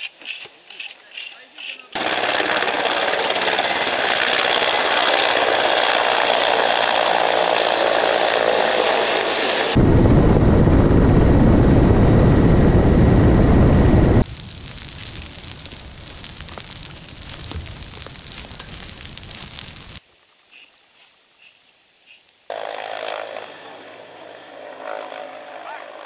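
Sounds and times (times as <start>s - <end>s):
helicopter rotors and turbines: 1.7s - 14.3s, 22.5s - 26.0s
airflow rumble: 2.0s - 20.0s.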